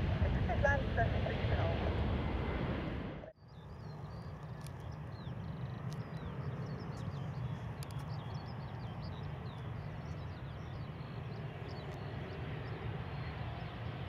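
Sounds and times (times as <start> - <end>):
steady low rumble: 0.0 - 14.0
small birds chirping: 3.4 - 14.0.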